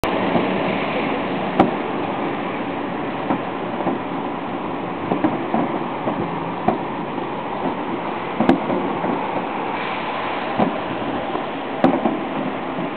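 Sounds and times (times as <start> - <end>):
fireworks bangs: 5.0 - 12.9.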